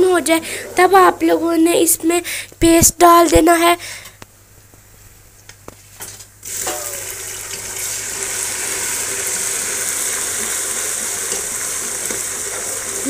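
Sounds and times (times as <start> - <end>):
paste sizzling in hot oil: 6.4 - 13.0.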